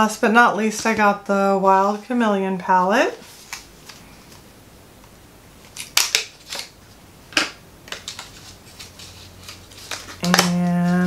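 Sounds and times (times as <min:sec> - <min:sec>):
packaging rustling and crinkling: 0:07.9 - 0:11.0.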